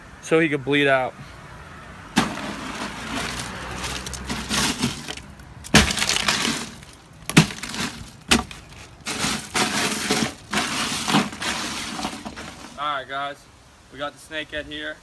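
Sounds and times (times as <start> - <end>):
ice cubes clattering in cooler: 2.2 - 12.8
sharp knocks: 4.1 - 11.4.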